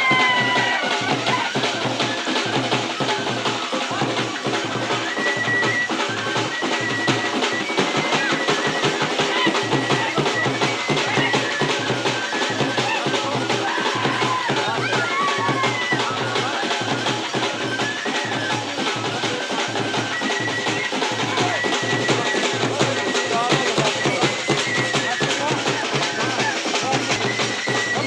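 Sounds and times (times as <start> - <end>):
dhol drums fast dance rhythm: 0.0 - 28.0.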